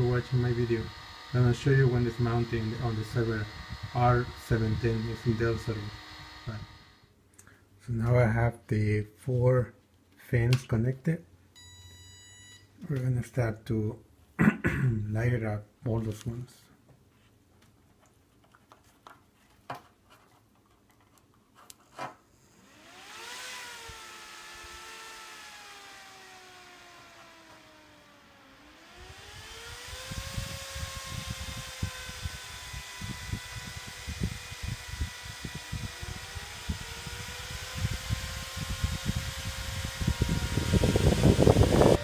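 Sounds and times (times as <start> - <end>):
server fans whining: 0.0 - 7.1, 22.4 - 42.0.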